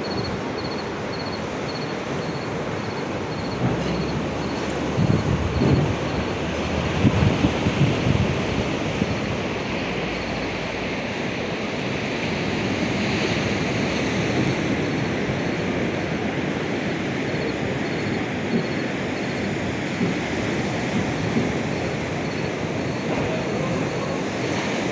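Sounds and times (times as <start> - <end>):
sea surf on a beach: 0.0 - 24.9
wind on microphone: 0.0 - 24.9.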